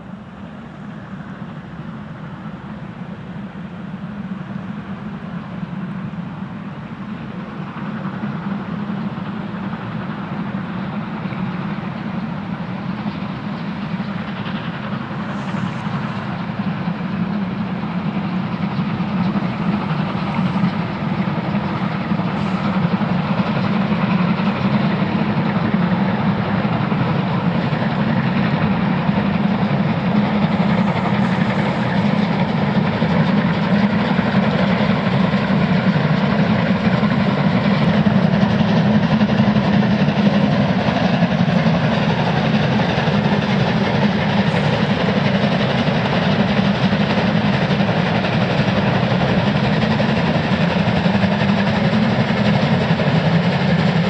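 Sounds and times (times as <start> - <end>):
steam trains rumbling past: 0.0 - 54.0.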